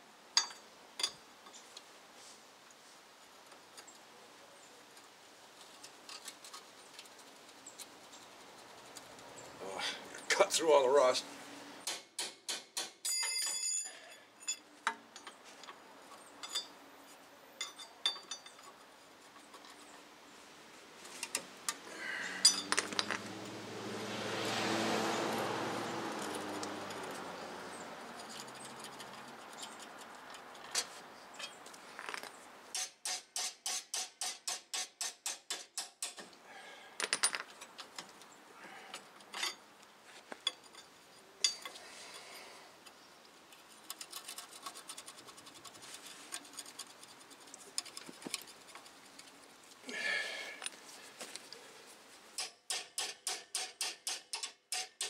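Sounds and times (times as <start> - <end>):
metal tool clinks: 13.0 - 14.7, 16.4 - 16.8, 17.6 - 18.7, 22.4 - 23.2.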